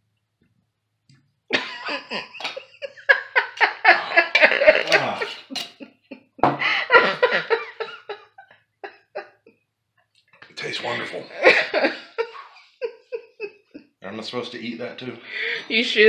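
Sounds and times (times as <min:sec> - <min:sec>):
strained laughter: 0:01.5 - 0:09.5, 0:10.6 - 0:13.8
man coughing and sputtering: 0:03.8 - 0:05.7.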